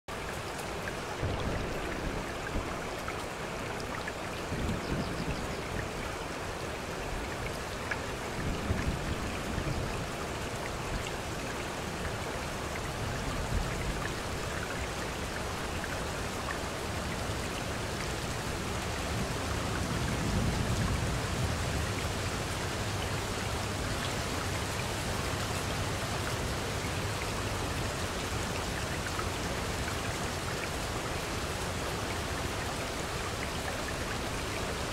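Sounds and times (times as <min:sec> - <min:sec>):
running water: 0:00.1 - 0:34.9
steady rain: 0:00.1 - 0:34.9.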